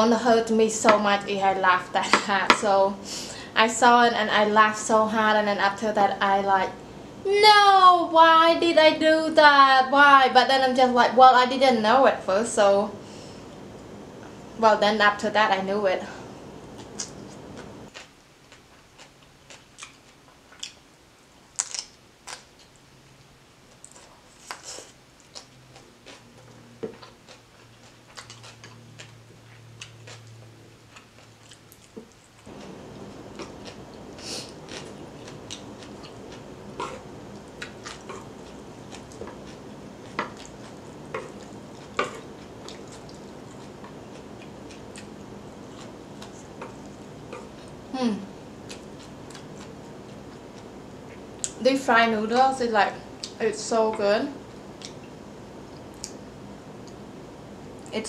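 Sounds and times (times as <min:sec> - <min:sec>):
steady background noise: 0:00.0 - 0:58.0
chewing fried noodles: 0:16.7 - 0:20.9, 0:21.5 - 0:51.6.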